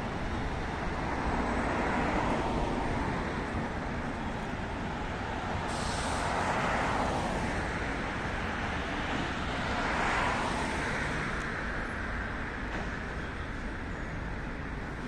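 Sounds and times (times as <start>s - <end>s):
steady traffic noise: 0.0s - 15.0s
vehicles passing close by: 0.0s - 15.0s.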